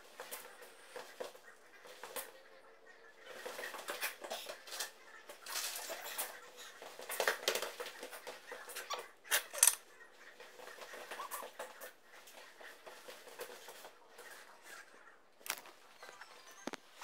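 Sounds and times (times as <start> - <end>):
scraping rustling and tapping: 3.3 - 16.9.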